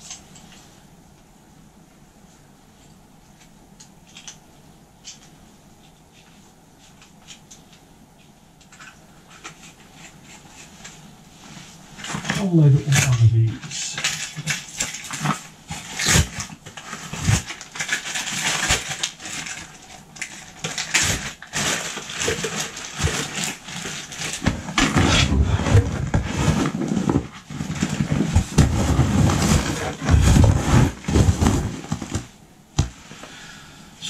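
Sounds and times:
rummaging through a backpack: 11.9s - 33.0s.

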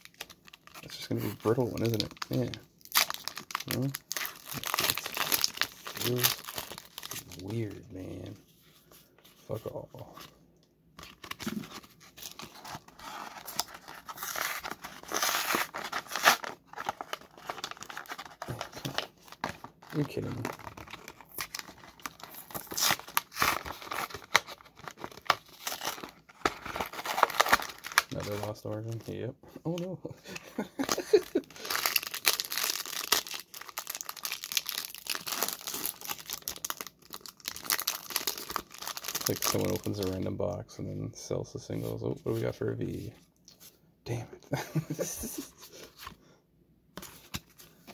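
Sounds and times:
packaging crinkling and tearing: 0.0s - 8.3s, 11.0s - 29.2s, 30.3s - 40.2s.

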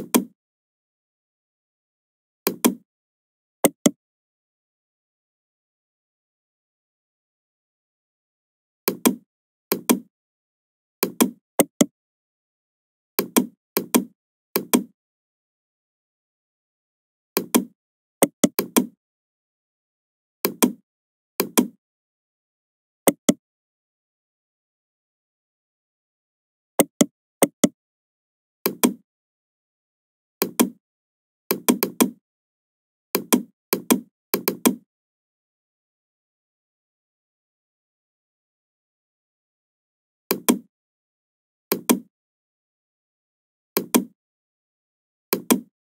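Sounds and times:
computer mouse clicks: 40.3s - 40.7s, 43.8s - 44.1s, 45.3s - 45.7s.

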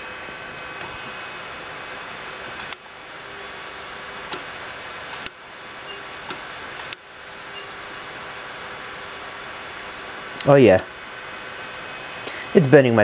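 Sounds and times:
sharp clicks: 2.7s - 3.4s, 5.2s - 6.0s
high-pitched buzz: 2.8s - 3.5s, 5.3s - 6.1s, 7.0s - 7.8s.

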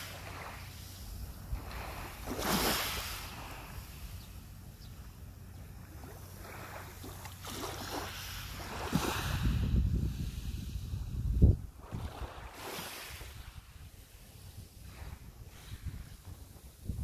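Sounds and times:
waves washing onto pebbles: 0.0s - 4.1s, 6.3s - 10.6s, 11.8s - 14.2s
wind buffeting microphone: 8.6s - 14.0s, 14.8s - 17.0s.

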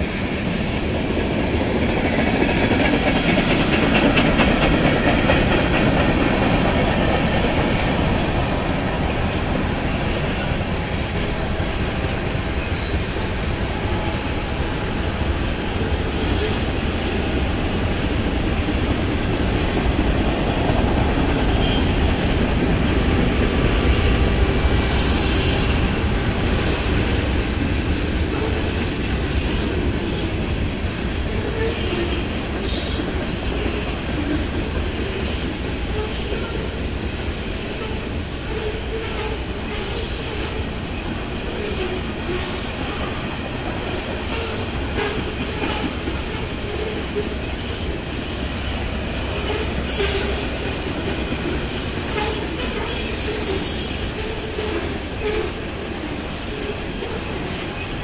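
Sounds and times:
train wheels rumbling on rails: 0.0s - 58.0s
high wheel squeals: 48.2s - 50.7s.

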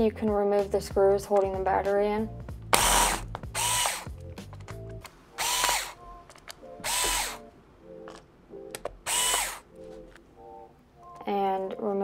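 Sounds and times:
electric screwdriver running: 2.8s - 4.2s, 5.4s - 6.0s, 6.8s - 7.4s, 9.0s - 9.6s.

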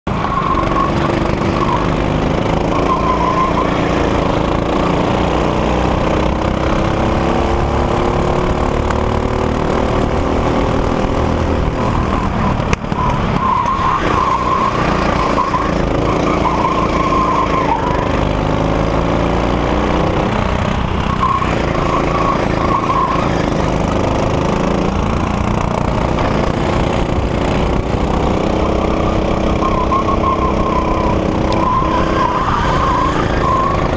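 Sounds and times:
go-kart engine revving: 0.1s - 33.9s
tyres squealing: 11.8s - 18.2s, 21.0s - 23.7s, 28.4s - 33.9s.

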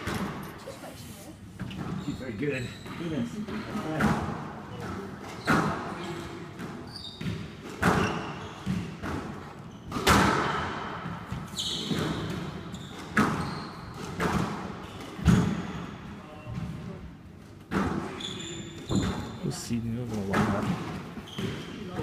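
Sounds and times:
shoe squeak on wooden floor: 1.6s - 4.1s, 4.7s - 9.0s, 9.6s - 10.1s, 11.4s - 16.7s, 18.0s - 19.5s, 21.2s - 22.0s
squash ball hits echoing: 3.8s - 5.9s, 6.6s - 15.8s.

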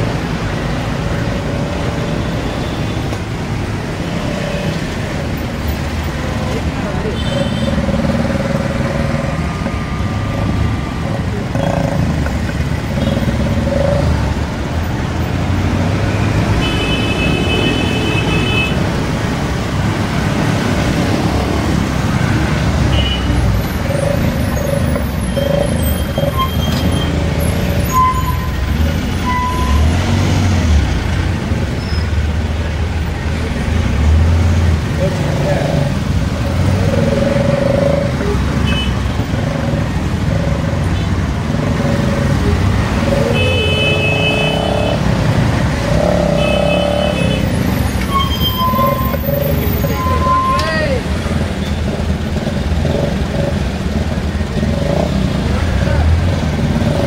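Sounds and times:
bus engine rumble: 0.0s - 16.6s, 47.1s - 57.0s
road noise: 0.0s - 57.0s.

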